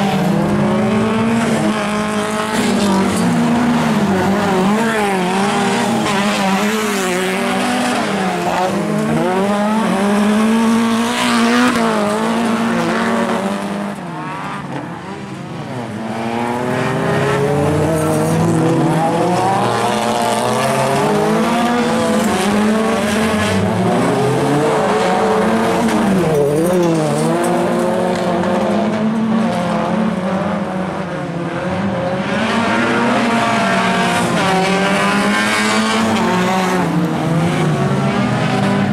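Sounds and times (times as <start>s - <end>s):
racing car engines revving: 0.0s - 38.9s.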